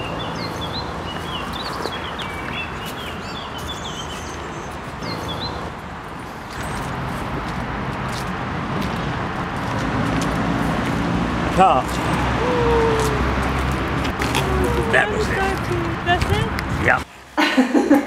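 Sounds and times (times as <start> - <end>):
songbirds chirping: 0.0 - 6.9, 14.0 - 17.1
city traffic rumble: 0.0 - 18.0.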